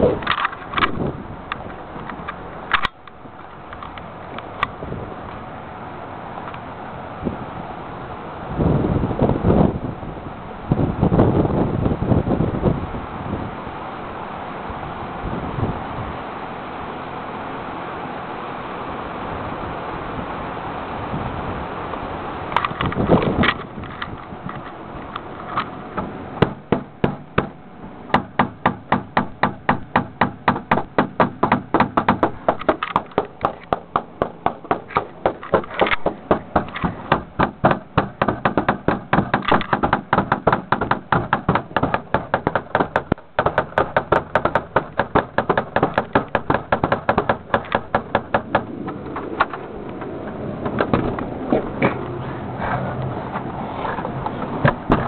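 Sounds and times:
knocking on a door: 28.2s - 48.7s.

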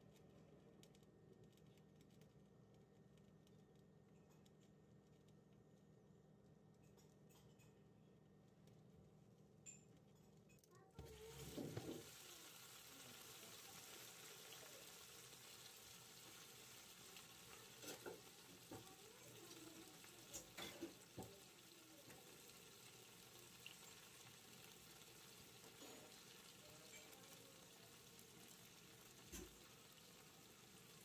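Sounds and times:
meat sizzling: 11.0s - 31.0s.

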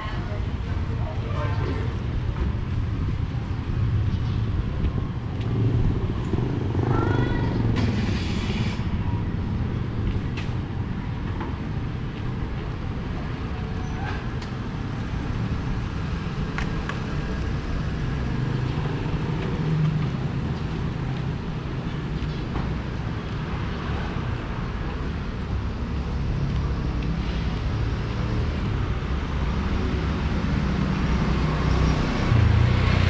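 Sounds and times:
rumble of passing vehicles: 0.0s - 33.0s
brief hiss: 7.8s - 8.9s.

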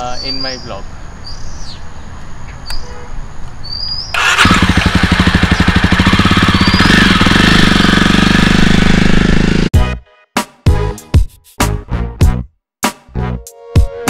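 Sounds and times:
birds chirping faintly: 0.0s - 4.2s
motorcycle engine starting and running: 4.2s - 9.7s.

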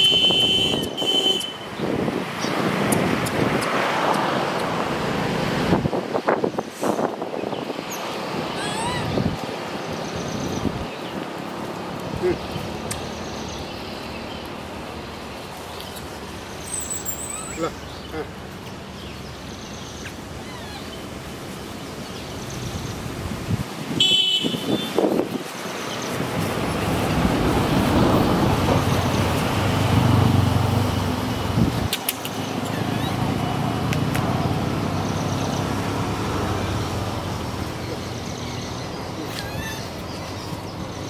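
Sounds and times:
short vehicle horn toot: 0.0s - 1.6s, 24.0s - 25.0s
road traffic passing: 0.0s - 41.0s.

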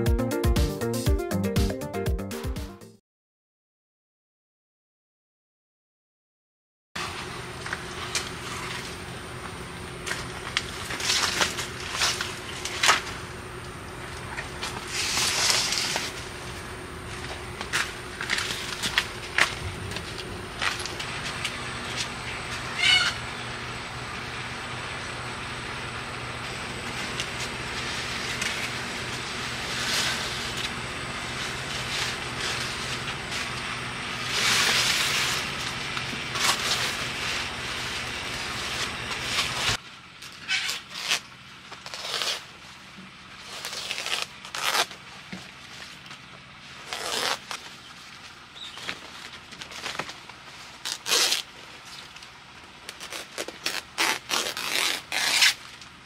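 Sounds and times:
banana leaves rustling and tearing: 7.0s - 23.2s, 26.2s - 56.0s
steady low hum: 7.0s - 56.0s
knife slicing leaves: 36.3s - 42.6s, 43.4s - 45.0s, 52.9s - 55.6s.

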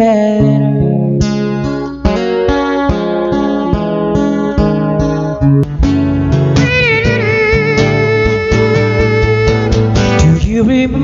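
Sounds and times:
acoustic guitar strumming: 0.0s - 11.0s.

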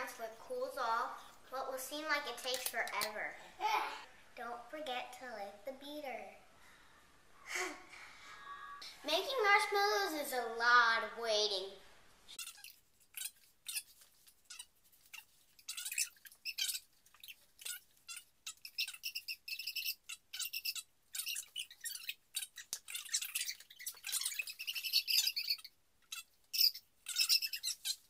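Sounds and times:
bird chirping: 12.4s - 28.0s.

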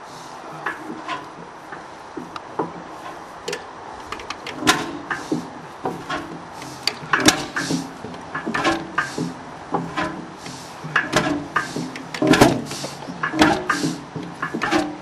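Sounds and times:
mechanical clatter: 0.7s - 15.0s
hot-bulb engine knocking: 4.5s - 15.0s.

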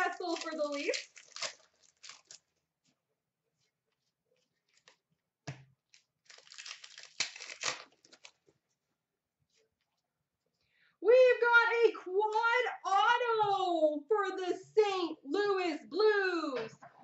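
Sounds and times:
cards rustling: 0.0s - 2.5s, 5.9s - 8.5s
foil wrapper crinkling and tearing: 0.0s - 2.6s, 5.9s - 8.4s.

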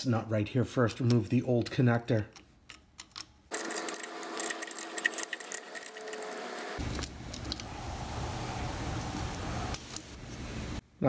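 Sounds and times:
wrench and nut clinking: 0.8s - 7.6s.

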